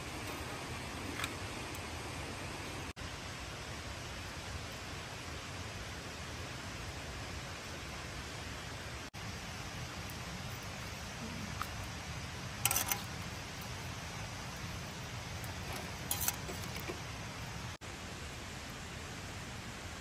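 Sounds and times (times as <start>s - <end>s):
steady rushing hiss: 0.0s - 20.0s
fish grilling crackles: 9.1s - 17.8s.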